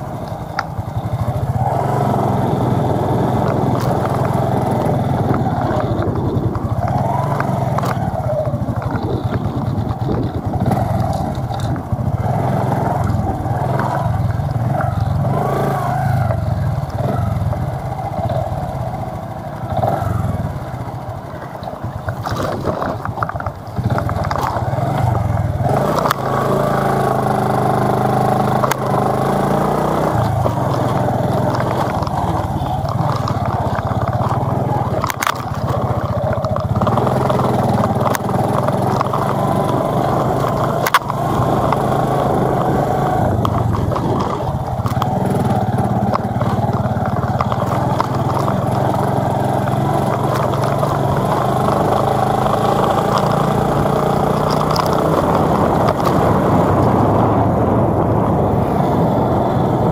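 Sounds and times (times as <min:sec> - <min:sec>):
motor scooter passing: 0:00.0 - 0:59.9
vehicle engine on dirt road: 0:00.0 - 0:59.9.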